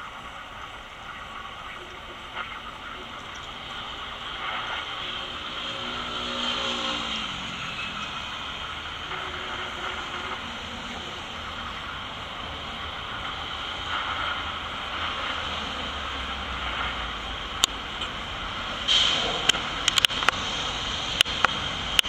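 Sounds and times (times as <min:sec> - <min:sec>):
city street traffic: 0:00.0 - 0:22.0
motor scooter passing: 0:03.5 - 0:09.6.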